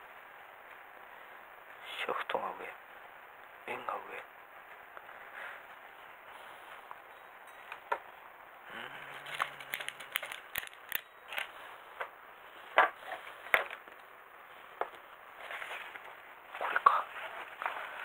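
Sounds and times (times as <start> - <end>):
packaging crinkling: 9.1 - 11.6
plastic parts clicking and tapping: 9.3 - 11.5.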